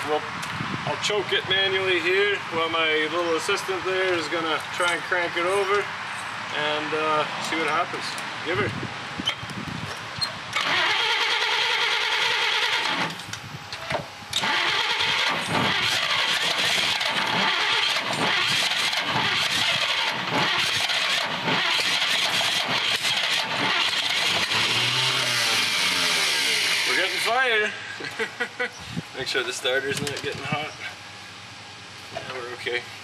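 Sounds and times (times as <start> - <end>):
car starter cranking engine: 10.5 - 13.3, 14.3 - 27.4.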